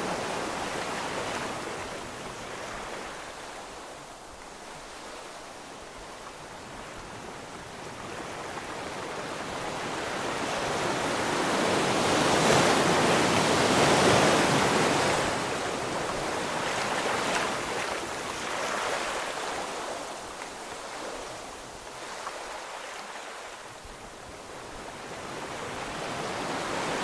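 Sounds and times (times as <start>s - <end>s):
ocean waves: 0.0s - 27.0s.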